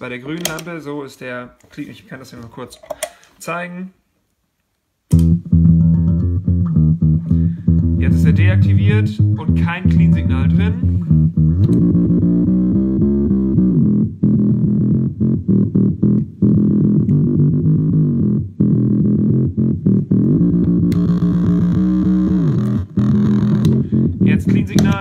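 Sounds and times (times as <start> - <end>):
electric bass riff with octaver: 5.1 - 25.0.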